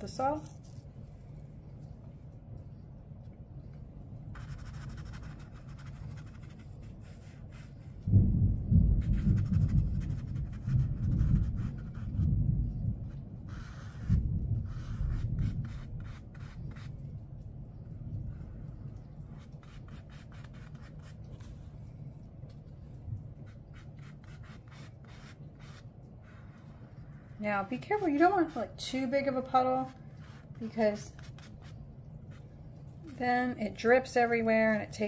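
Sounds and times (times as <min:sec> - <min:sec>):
paintbrush scratching on paper: 0:04.3 - 0:08.0, 0:09.0 - 0:17.0, 0:18.4 - 0:21.7, 0:23.4 - 0:32.5
thunder rumbling: 0:08.0 - 0:16.0.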